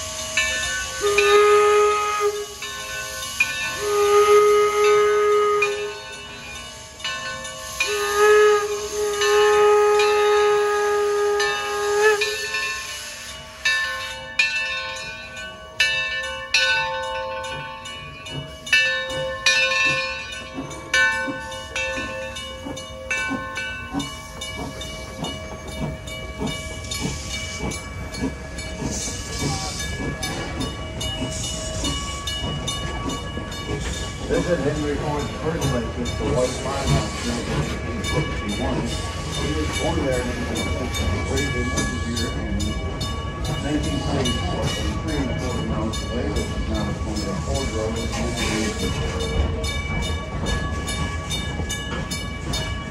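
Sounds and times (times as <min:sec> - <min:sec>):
hissing steam: 0:00.0 - 0:52.9
steam locomotive whistle: 0:00.1 - 0:06.5, 0:07.6 - 0:13.0.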